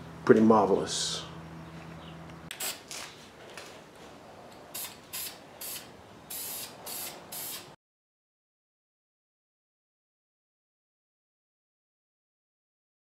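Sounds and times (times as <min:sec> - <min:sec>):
spray paint can hissing: 0:02.5 - 0:02.9, 0:04.7 - 0:07.8.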